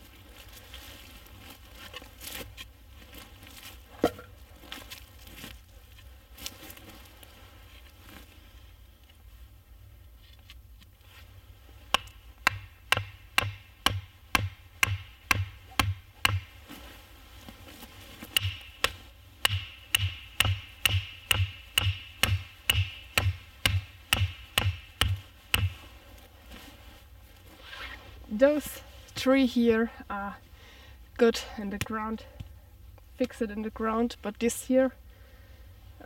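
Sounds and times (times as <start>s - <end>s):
wooden stakes being hammered: 11.9s - 16.8s, 18.2s - 26.0s.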